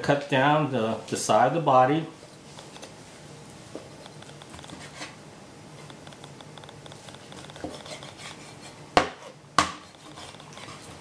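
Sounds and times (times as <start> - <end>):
knife scraping meat: 4.6 - 5.2, 6.9 - 11.0.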